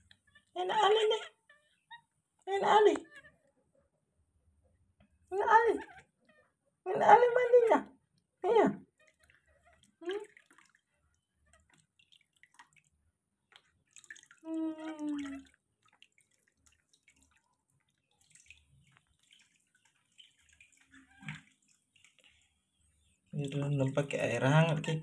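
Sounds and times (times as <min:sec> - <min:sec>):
water dripping and splashing: 0:08.9 - 0:25.0.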